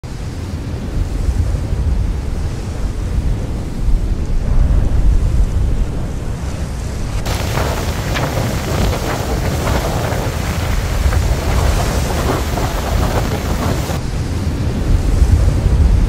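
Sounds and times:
wind buffeting microphone: 0.1s - 16.0s
surf breaking on beach: 6.4s - 14.3s.

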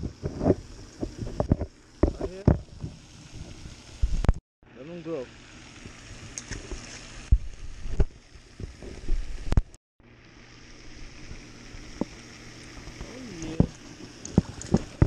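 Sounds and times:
outdoor background hiss: 0.0s - 15.0s
sharp knocks and thumps: 0.1s - 3.0s.

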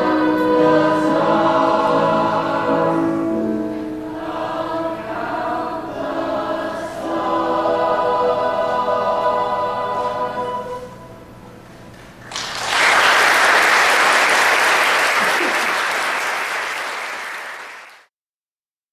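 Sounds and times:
choir singing with piano: 0.0s - 11.7s
audience applause: 12.2s - 18.1s.

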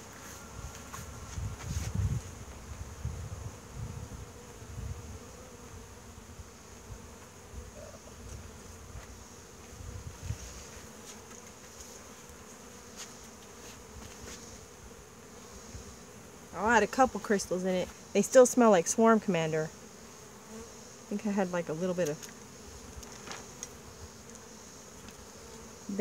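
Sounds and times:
honey bees buzzing: 0.0s - 26.0s
wind rumble on microphone: 0.6s - 5.3s, 9.7s - 10.6s.

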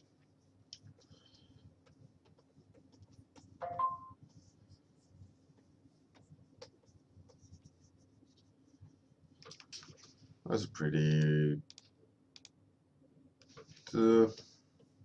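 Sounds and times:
stylus scratching on tablet: 1.8s - 9.0s
tone-like blip: 3.6s - 4.2s.

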